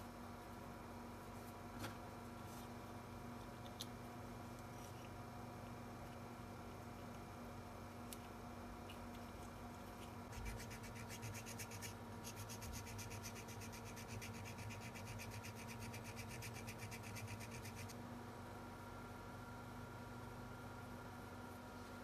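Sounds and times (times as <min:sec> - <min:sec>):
filing plastic: 0:09.9 - 0:18.0.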